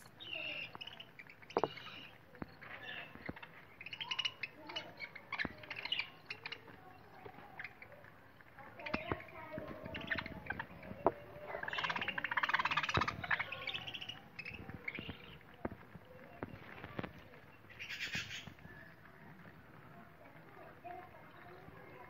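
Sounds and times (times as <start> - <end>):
beaks pecking at seed: 0.0 - 22.0
budgerigars chattering: 0.2 - 7.9, 8.7 - 15.5, 17.7 - 18.6.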